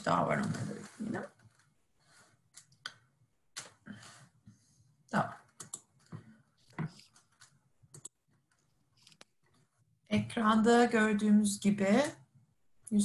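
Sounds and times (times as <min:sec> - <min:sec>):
computer keys clicking: 0:05.5 - 0:05.9, 0:07.0 - 0:09.3.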